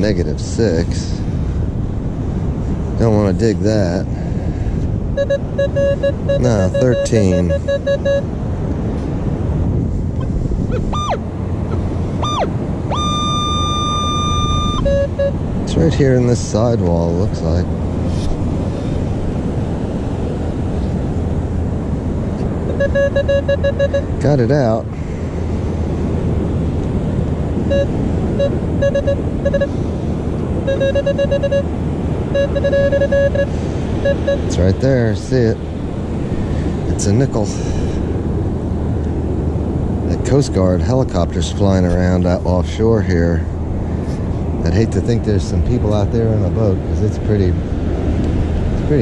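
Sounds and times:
strong wind: 0.0 - 49.0
metal detector beeps and tone: 5.2 - 8.3, 10.7 - 11.2, 12.2 - 15.4, 22.7 - 24.2, 27.7 - 29.8, 30.6 - 31.7, 32.3 - 34.6.

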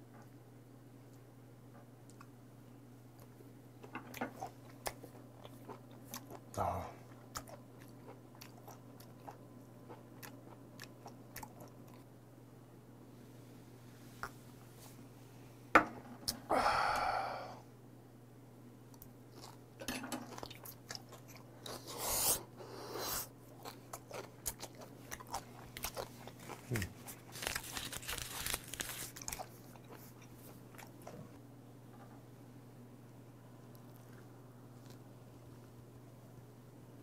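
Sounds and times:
wet chewing and lip-smacking: 4.1 - 12.1, 20.3 - 22.3, 23.0 - 31.2
breathy exhale: 16.5 - 17.7.

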